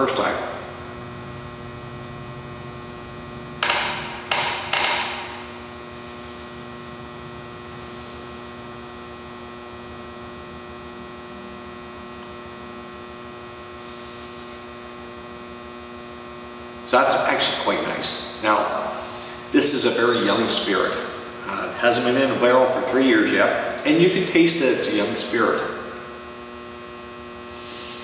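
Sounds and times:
electrical hum: 0.0 - 28.0
man breathing sharply: 18.9 - 19.5, 27.6 - 28.0.

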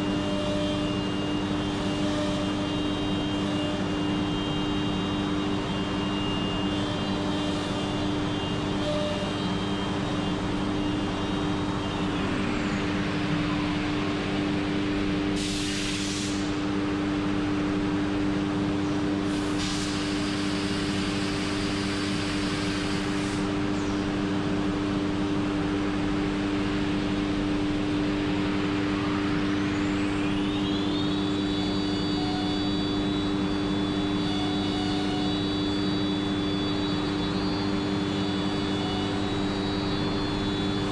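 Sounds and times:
high spindle whine: 0.0 - 17.5, 24.8 - 40.9
air hissing: 15.4 - 16.6, 19.3 - 23.4.

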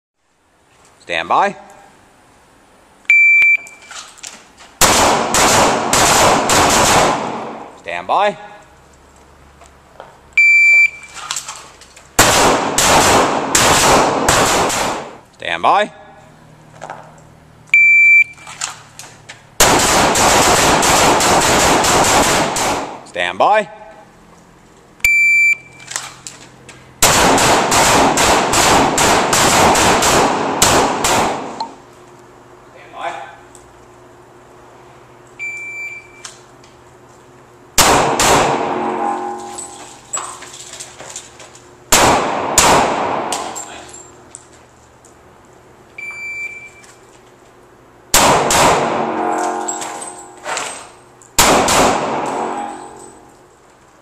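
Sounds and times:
shot timer beep: 3.1 - 3.9, 10.4 - 11.1, 17.7 - 18.4, 25.0 - 25.8, 35.4 - 36.3, 46.0 - 46.8
rapid handgun shots echoing: 4.8 - 7.7, 12.2 - 15.2, 19.6 - 23.0, 27.0 - 31.6, 37.8 - 38.8, 41.9 - 43.6, 48.2 - 49.1, 51.4 - 52.5
handgun shots echoing: 27.0 - 31.8, 37.8 - 38.8, 41.9 - 43.7, 48.2 - 49.1, 51.4 - 52.5.

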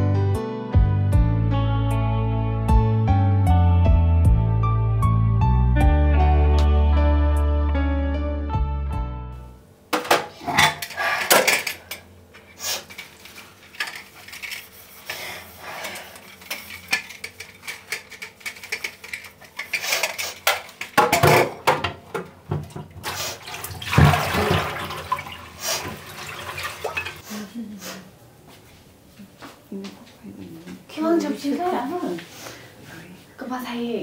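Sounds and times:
tap water running: 20.6 - 27.2.

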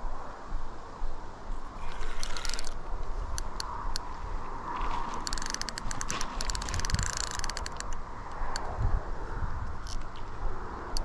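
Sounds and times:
fishing reel clicking: 1.8 - 4.0, 5.2 - 8.7, 9.8 - 10.2.

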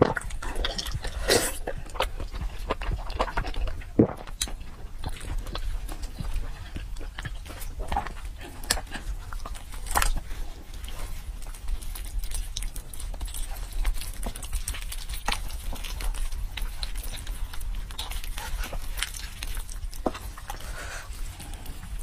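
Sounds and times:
meat tearing and squelching: 0.0 - 22.0.

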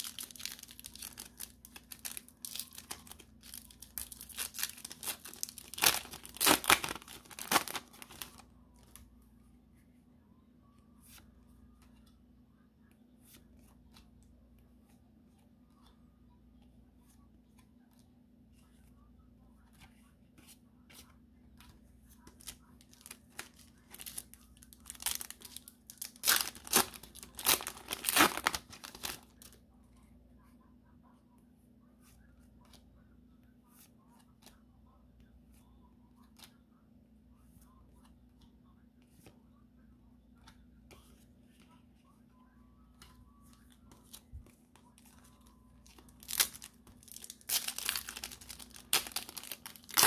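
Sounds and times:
foil pack crinkling and tearing: 0.0 - 8.4, 22.4 - 29.5, 45.8 - 50.0.

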